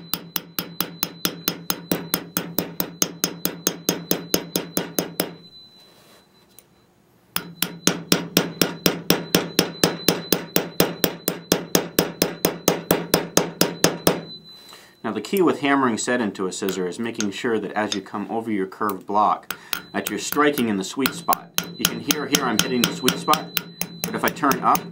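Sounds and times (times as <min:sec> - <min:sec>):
hammer tapping on steel blade: 0:00.0 - 0:05.4, 0:07.4 - 0:14.2, 0:16.6 - 0:18.1, 0:18.9 - 0:24.9.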